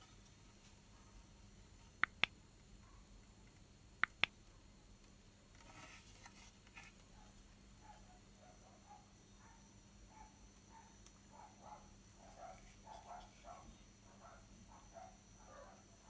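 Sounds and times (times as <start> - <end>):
sharp plastic clicks: 2.0 - 2.4, 4.0 - 4.4
soft rustle: 5.6 - 7.4.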